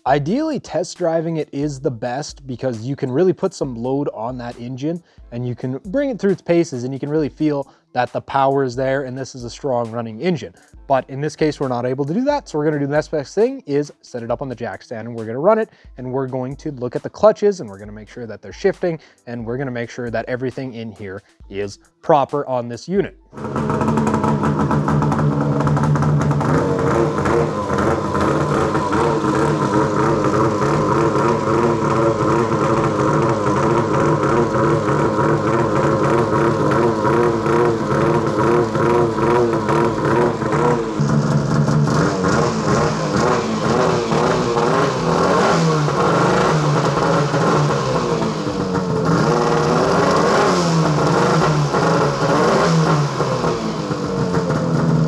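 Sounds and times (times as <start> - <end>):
snowmobile engine revving: 23.3 - 55.0.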